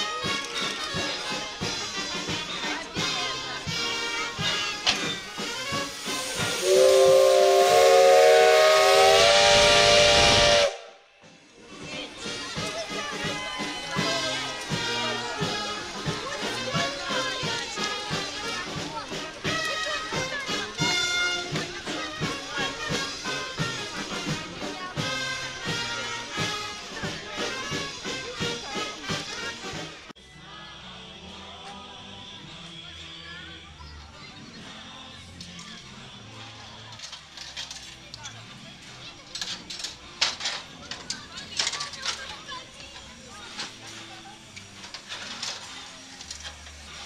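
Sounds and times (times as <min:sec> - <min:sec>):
brass band marching music: 0:00.0 - 0:11.0, 0:12.4 - 0:30.1
rush of steam: 0:03.9 - 0:11.0, 0:42.9 - 0:47.0
steam locomotive whistle blast: 0:05.4 - 0:11.1.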